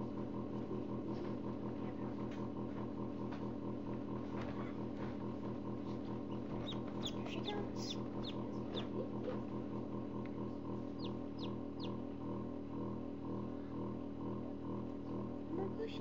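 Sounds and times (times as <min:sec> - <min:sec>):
incubator fan hum: 0:00.0 - 0:16.0
chick peeping: 0:06.3 - 0:09.0, 0:11.0 - 0:12.0.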